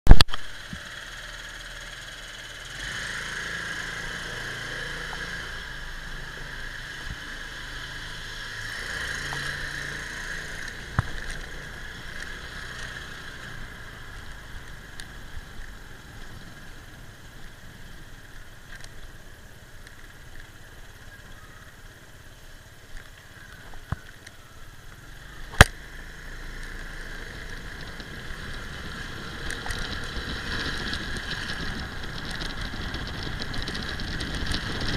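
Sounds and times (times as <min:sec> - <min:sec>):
loud click: 0:00.1 - 0:00.5
wind and road noise: 0:00.1 - 0:34.9
motorbike engine running: 0:00.4 - 0:18.7, 0:23.4 - 0:34.9.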